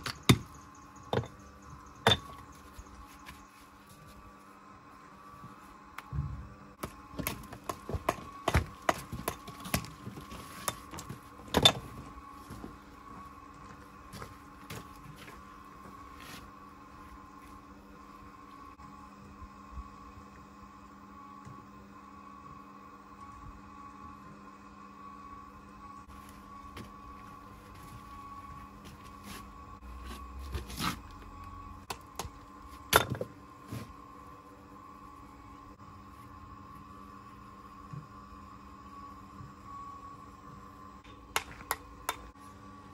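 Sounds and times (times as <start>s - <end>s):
faint steady hum: 0.0s - 42.9s
stone and tools knocking: 2.0s - 2.4s.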